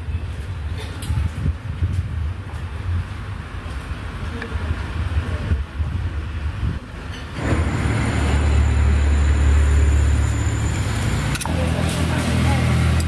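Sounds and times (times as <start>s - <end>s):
low engine rumble: 3.3s - 13.0s.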